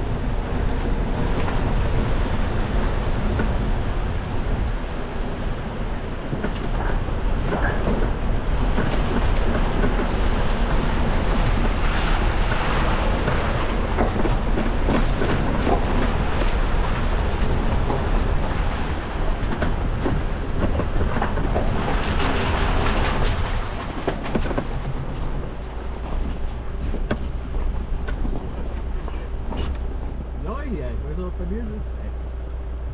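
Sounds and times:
vehicle engine and tyre rumble: 0.0 - 32.9
small rattles and crunches: 11.3 - 29.9.

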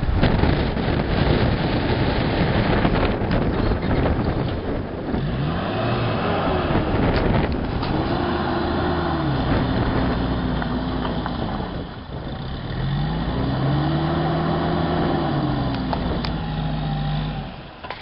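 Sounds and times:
car engine revving: 5.0 - 17.9.

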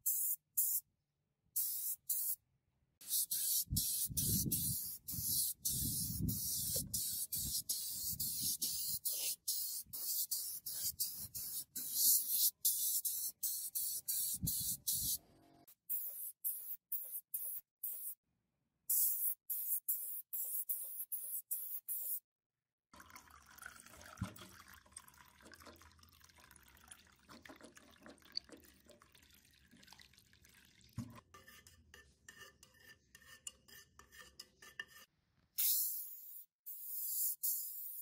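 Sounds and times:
spray-paint gun hissing: 1.6 - 2.4, 3.0 - 15.2, 15.9 - 18.2, 18.9 - 22.2, 35.6 - 38.0
liquid pouring into metal cup: 23.0 - 31.2
stick stirring paint: 31.0 - 35.2.

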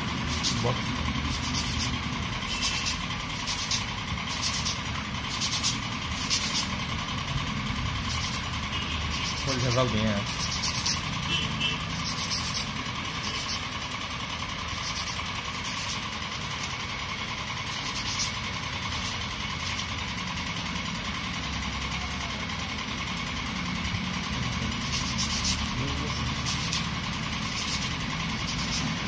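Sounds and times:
foam rubbing on sandpaper: 0.0 - 6.8, 7.9 - 11.2, 11.8 - 13.7, 14.7 - 16.2, 17.7 - 19.9, 24.7 - 29.0
low background hum: 0.0 - 29.0.

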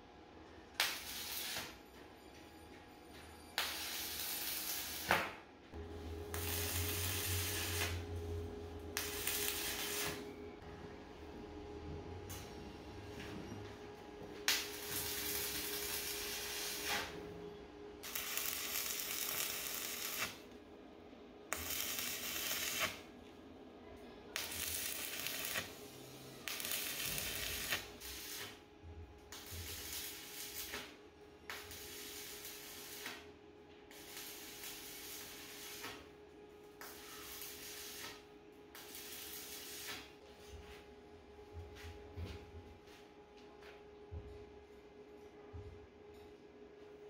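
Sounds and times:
arc welding crackling and hissing: 0.7 - 1.9, 3.6 - 10.3, 14.4 - 17.3, 18.0 - 20.5, 21.5 - 23.1, 24.3 - 28.6, 29.2 - 40.2
steady low hum: 5.6 - 30.4.

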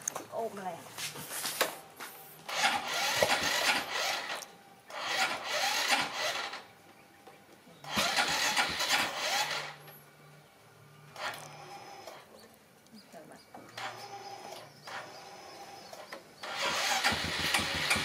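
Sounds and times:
scooter starter cranking: 2.5 - 6.7, 7.9 - 9.8, 16.0 - 18.0.

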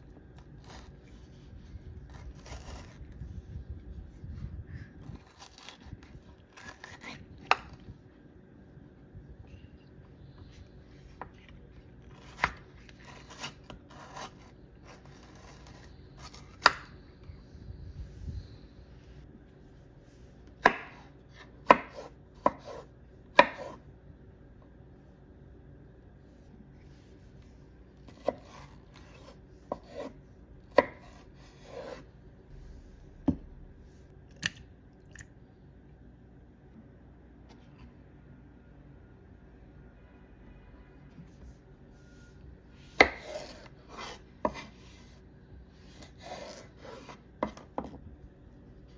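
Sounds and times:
knife scraping: 0.4 - 3.2, 12.0 - 16.7, 28.0 - 32.1, 42.0 - 45.2, 45.8 - 47.6
knife chopping on wooden board: 20.6 - 23.8, 28.1 - 30.1, 43.0 - 44.7, 46.2 - 48.0.

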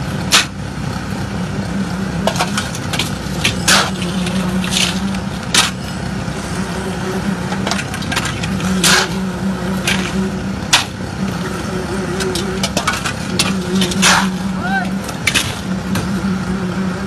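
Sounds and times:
engine droning: 0.0 - 17.0
shovel scraping wet concrete: 2.2 - 6.0, 7.6 - 9.2, 12.3 - 14.5.

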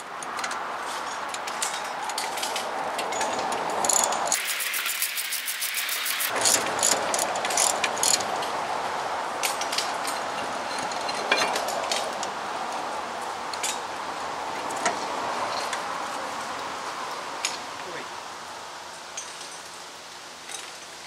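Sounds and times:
ratchet wrench clicking: 3.8 - 8.2
steady hiss: 4.3 - 9.0.

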